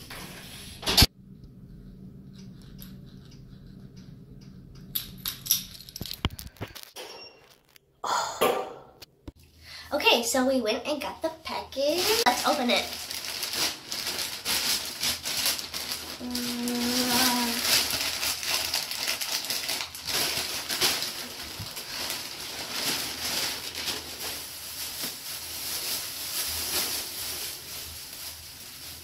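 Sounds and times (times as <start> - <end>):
plastic bag crinkling: 11.7 - 29.0.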